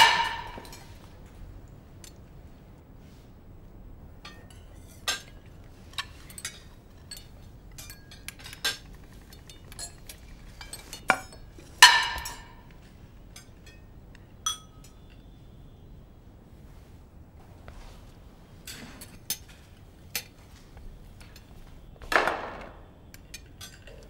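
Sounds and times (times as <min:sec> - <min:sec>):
plates glasses and cutlery clinking: 0:00.0 - 0:01.1, 0:04.3 - 0:12.7, 0:23.2 - 0:24.0.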